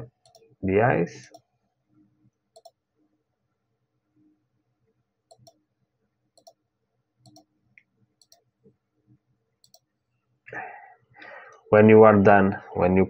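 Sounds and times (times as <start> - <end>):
faint computer mouse clicks: 2.6 - 2.8, 5.3 - 5.6, 6.4 - 6.6, 7.2 - 8.4, 9.6 - 9.9.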